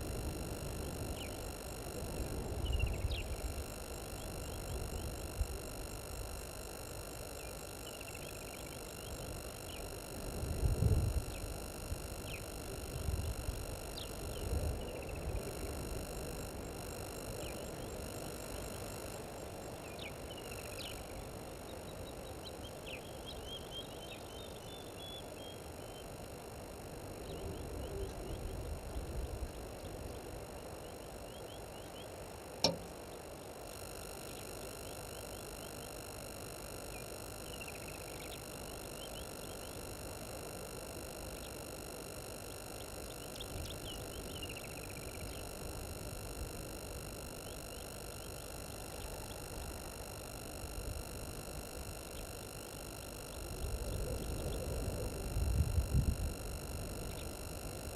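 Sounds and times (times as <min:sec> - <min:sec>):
steady high-pitched tones: 0:00.0 - 0:57.9
sharp click: 0:32.6 - 0:33.0.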